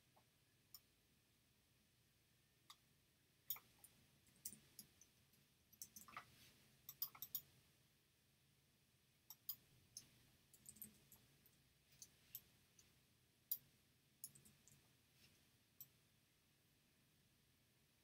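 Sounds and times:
computer mouse clicks: 3.5 - 5.1, 5.7 - 6.3, 6.9 - 7.5, 9.3 - 11.2, 13.5 - 14.8.

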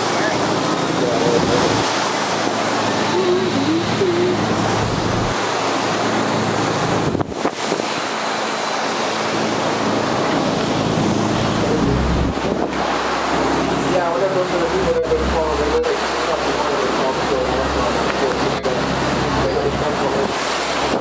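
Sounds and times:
waves breaking and churning: 0.0 - 21.0
wind buffeting microphone: 3.5 - 7.9, 9.9 - 13.9.

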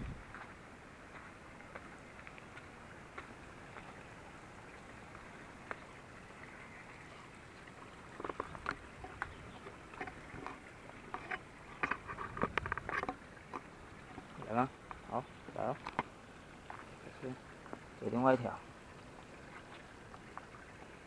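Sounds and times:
footsteps on river stones: 0.0 - 4.0, 8.1 - 17.0, 17.6 - 17.9, 19.2 - 21.0.

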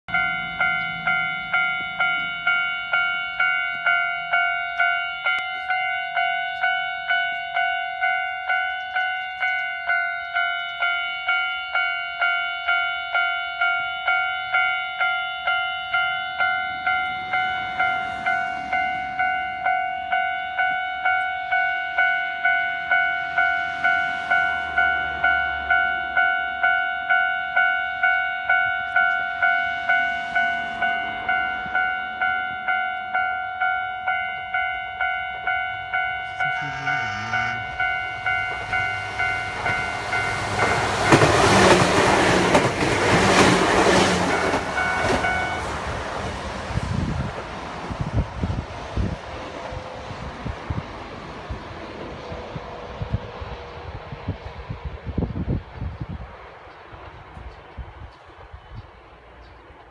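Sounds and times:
level crossing warning bell: 0.1 - 46.0.

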